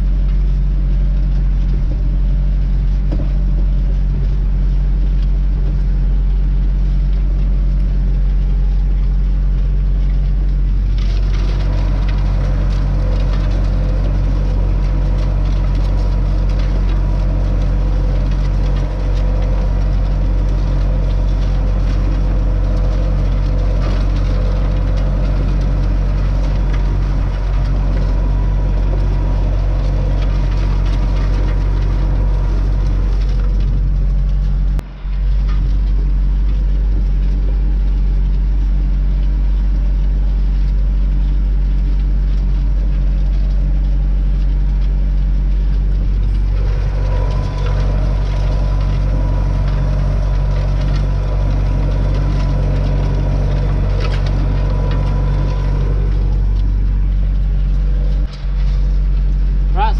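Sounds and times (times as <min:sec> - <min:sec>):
tractor diesel engine running: 0:00.0 - 0:59.9
steel discs scraping soil: 0:46.2 - 0:59.0.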